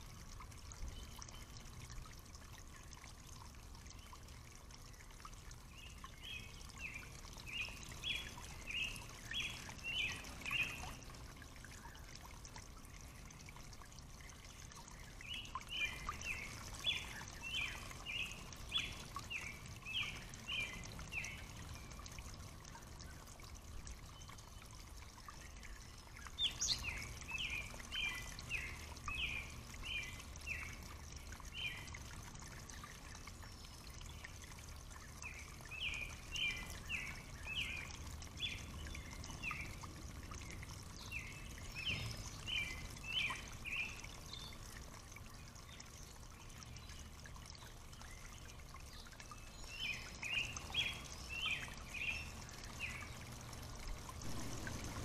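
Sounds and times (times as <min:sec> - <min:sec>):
shallow stream trickling: 0:00.0 - 0:55.0
songbird singing: 0:05.6 - 0:12.1, 0:14.3 - 0:22.2, 0:24.0 - 0:32.0, 0:35.2 - 0:44.7, 0:45.3 - 0:53.4.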